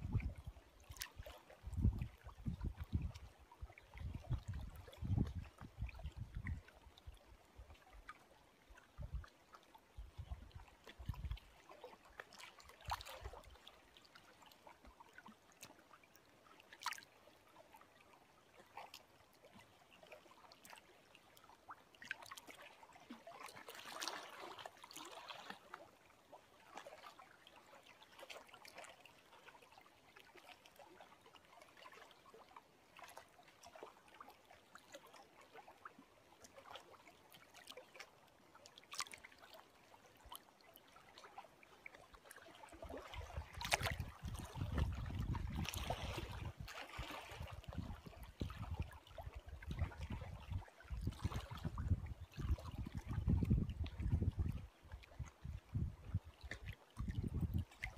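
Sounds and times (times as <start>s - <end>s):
small lake waves lapping: 0.0s - 57.9s
water splashing: 41.2s - 53.1s.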